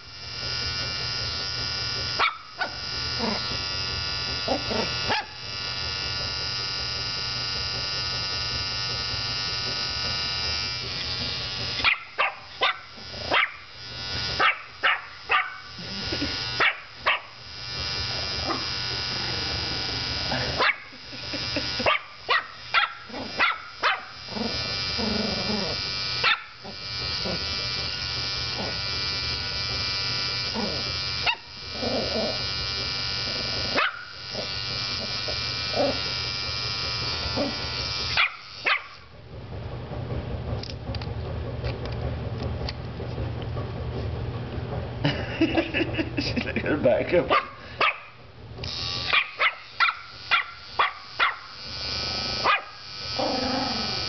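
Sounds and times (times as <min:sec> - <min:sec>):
electric beard trimmer buzzing: 0:00.0 - 0:43.5, 0:44.1 - 0:54.0
dog barking: 0:02.2 - 0:02.8, 0:04.7 - 0:05.4, 0:11.8 - 0:13.6, 0:14.4 - 0:15.7, 0:16.6 - 0:17.4, 0:20.6 - 0:20.9, 0:21.8 - 0:24.2, 0:26.2 - 0:26.5, 0:33.8 - 0:34.1, 0:38.2 - 0:39.0, 0:47.3 - 0:48.2, 0:49.1 - 0:51.5, 0:52.4 - 0:52.8.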